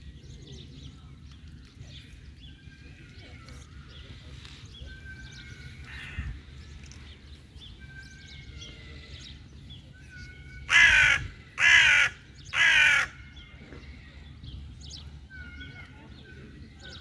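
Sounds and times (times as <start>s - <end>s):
crow cawing: 10.7s - 13.2s.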